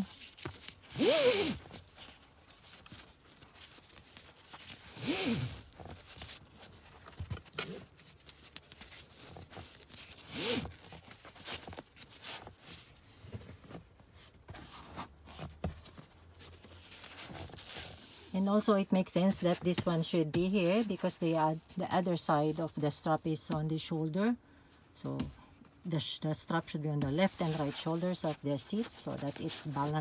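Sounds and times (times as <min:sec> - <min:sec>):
strap zipping through adjuster: 0:00.9 - 0:01.6, 0:04.9 - 0:05.7, 0:10.2 - 0:10.8.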